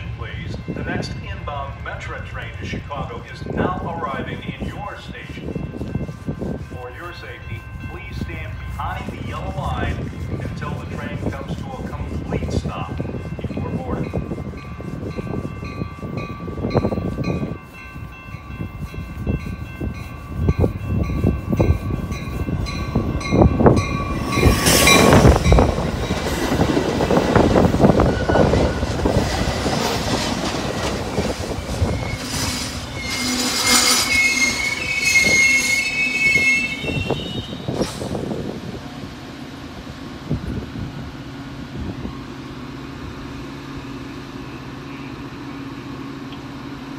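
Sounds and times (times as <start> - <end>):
ringing crossing bell: 0.0 - 26.6
train wheels on rails: 0.0 - 46.9
high wheel squeal: 26.5 - 29.6, 30.7 - 38.2.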